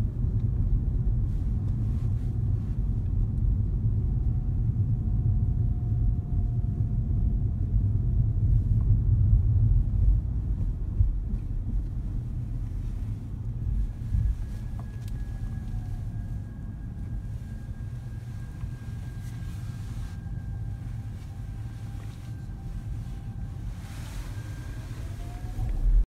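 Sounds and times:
road and tyre rumble: 0:00.0 - 0:26.0
faint thin whine: 0:09.9 - 0:26.0.

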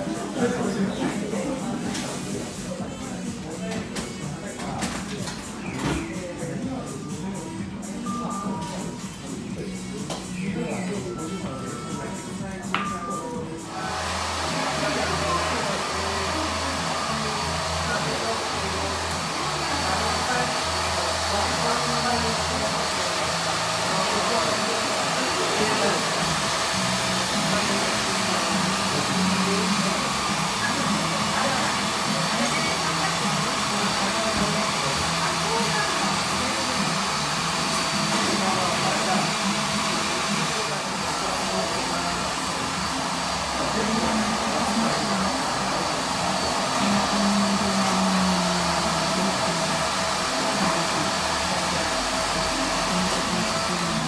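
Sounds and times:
low voices: 0:00.0 - 0:54.0
hair dryer blowing: 0:13.7 - 0:54.0.

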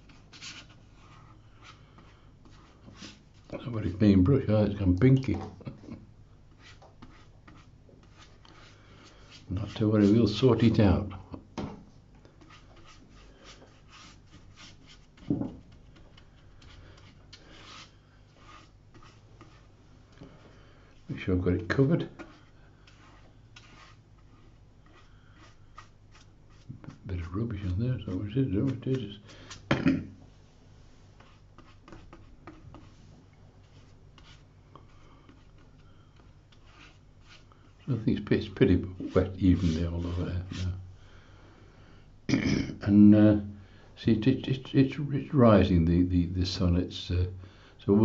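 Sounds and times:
low steady hum: 0:00.0 - 0:48.0
wet brush swishing on paper: 0:12.4 - 0:19.7, 0:21.6 - 0:27.0, 0:30.8 - 0:40.8.

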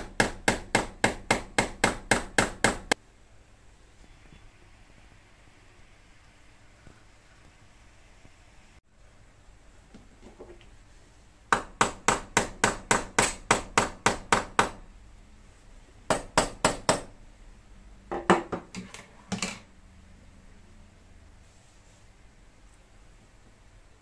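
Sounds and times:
hammer striking nail: 0:00.0 - 0:03.0, 0:11.5 - 0:14.8.

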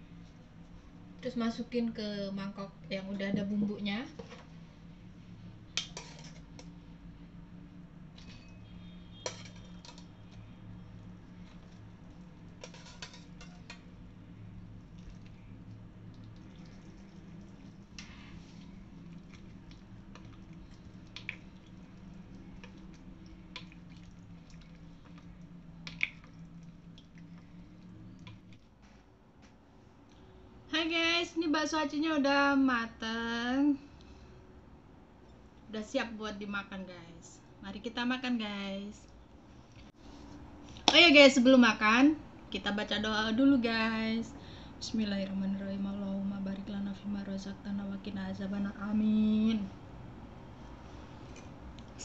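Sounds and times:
steady low hum: 0:00.0 - 0:52.0
metal ladle clinking cookware: 0:09.2 - 0:10.0.

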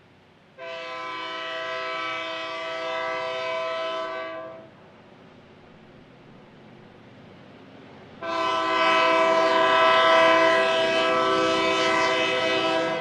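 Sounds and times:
low rumble of train: 0:00.0 - 0:13.0
locomotive air horn: 0:00.6 - 0:04.7, 0:08.2 - 0:13.0.

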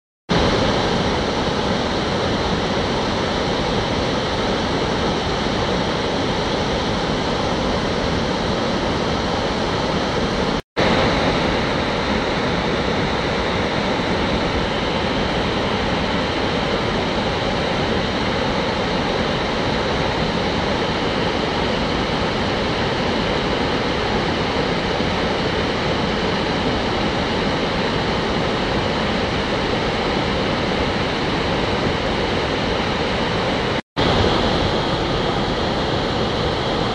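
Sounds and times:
waterfall rushing: 0:00.3 - 0:36.9.

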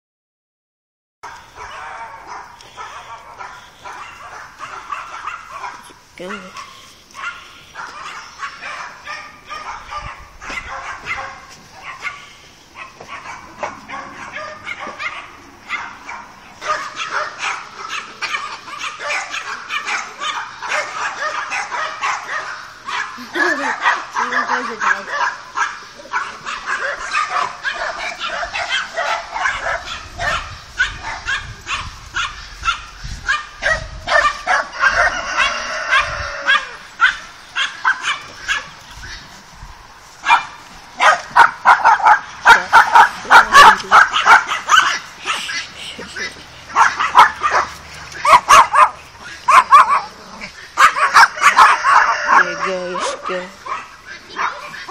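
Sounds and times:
animal yapping: 0:01.3 - 0:39.4, 0:40.3 - 0:54.9
high-pitched animal calls: 0:41.6 - 0:54.9.

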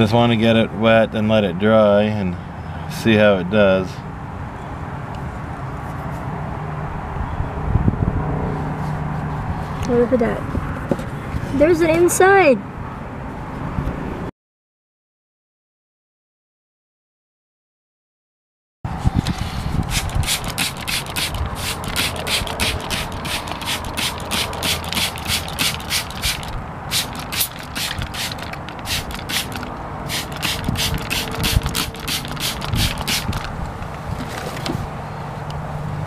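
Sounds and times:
spray bottle squirting: 0:19.3 - 0:34.4.

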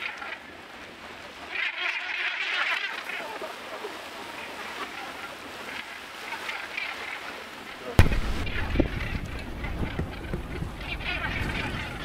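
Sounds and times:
sea wash: 0:00.0 - 0:12.0
splashing: 0:00.0 - 0:12.0
gannets calling harshly: 0:08.0 - 0:12.0.

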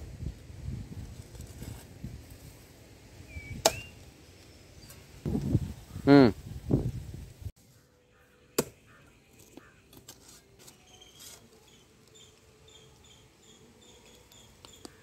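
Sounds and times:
faint high chirping: 0:10.6 - 0:15.0.

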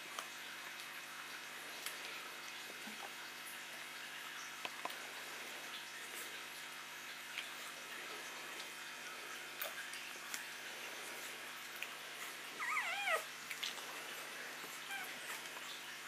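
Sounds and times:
puppies suckling clicks and smacks: 0:00.1 - 0:05.0, 0:07.2 - 0:08.9, 0:09.5 - 0:16.0
puppy squealing: 0:12.6 - 0:13.3, 0:14.8 - 0:15.2.

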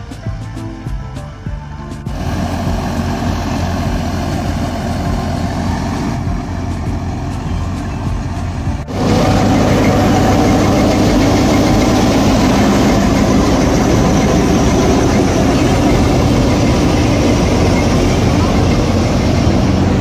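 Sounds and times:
diesel engine hum: 0:00.0 - 0:20.0
straw chopper machine whirring: 0:01.3 - 0:20.0.

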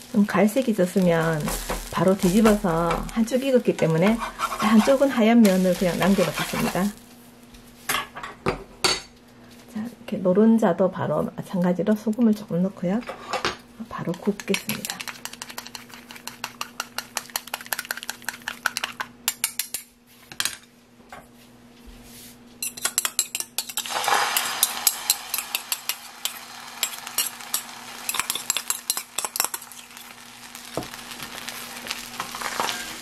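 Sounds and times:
egg sizzling in frying pan: 0:00.0 - 0:07.1, 0:14.4 - 0:19.0, 0:23.6 - 0:33.0
spoon scraping frying pan: 0:01.2 - 0:07.0, 0:14.1 - 0:19.0, 0:22.6 - 0:30.0, 0:31.4 - 0:33.0
metal spoon clinking in bowl: 0:22.6 - 0:23.9.

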